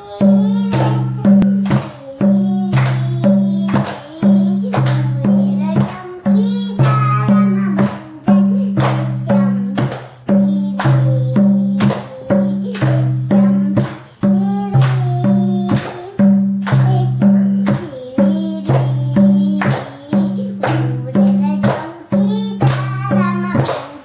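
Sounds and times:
hand drum folk rhythm: 0.0 - 24.0.

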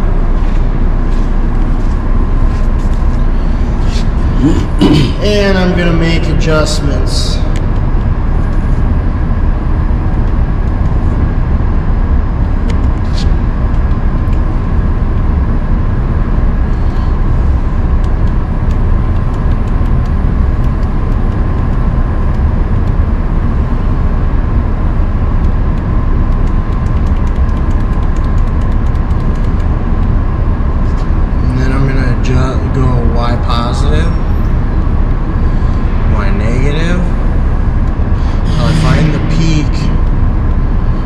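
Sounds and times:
machinery rumble and hum: 0.0 - 41.0.

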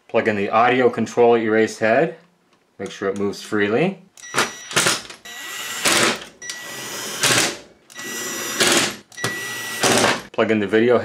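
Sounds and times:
drill motor whining: 4.2 - 10.2.

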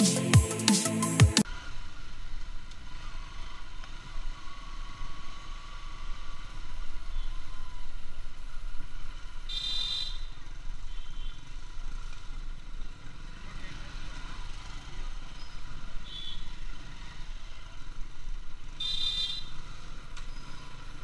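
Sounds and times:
road noise: 0.0 - 21.0
vehicle horn beep: 10.9 - 11.4.

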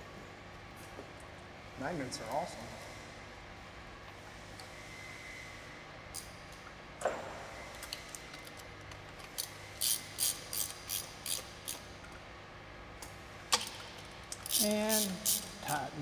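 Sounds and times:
ratchet wrench clicking: 9.4 - 11.8, 14.3 - 15.6.

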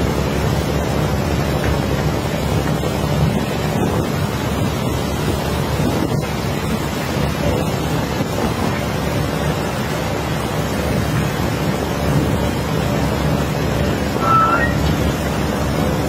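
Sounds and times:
short rising chirp: 14.2 - 14.8.

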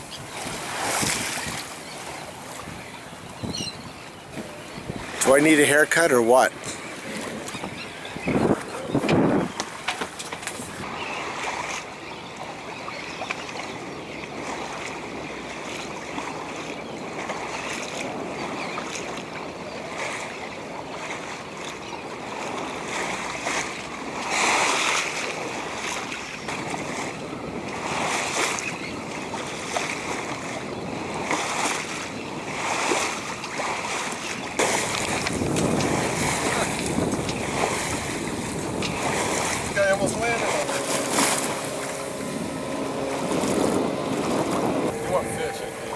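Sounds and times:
wind on microphone: 0.0 - 11.7, 24.1 - 45.9
water washing along hull: 0.0 - 45.9.

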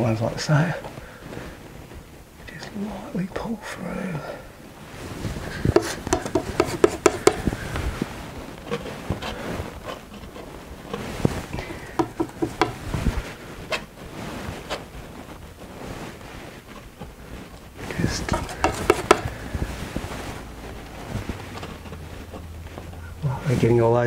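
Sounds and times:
palette knife scraping and tapping: 5.5 - 7.8, 8.6 - 13.0, 18.0 - 19.7.

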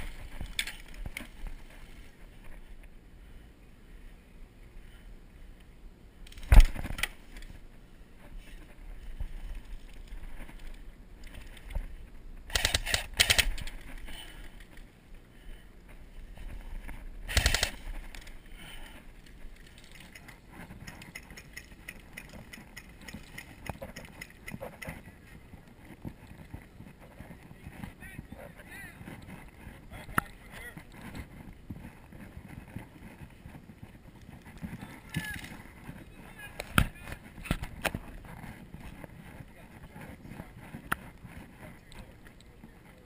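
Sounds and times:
airsoft gunfire cracks: 17.3 - 17.8.

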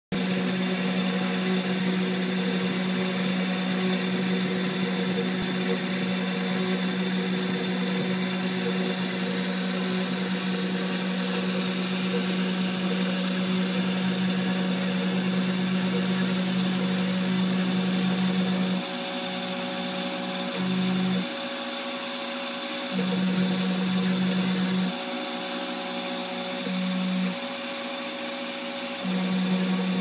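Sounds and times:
milling machine spindle humming: 0.1 - 30.0.

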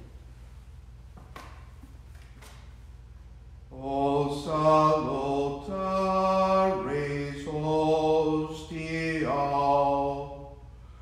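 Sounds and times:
chant-like hymn singing: 3.7 - 10.7.

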